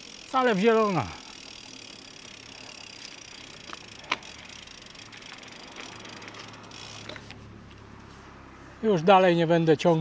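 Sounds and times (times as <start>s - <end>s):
mountain bike rolling: 0.0s - 7.8s.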